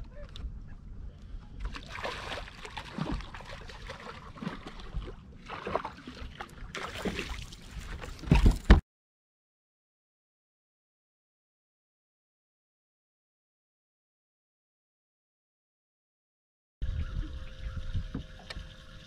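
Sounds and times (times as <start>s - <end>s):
fish thrashing in water: 1.6s - 8.5s.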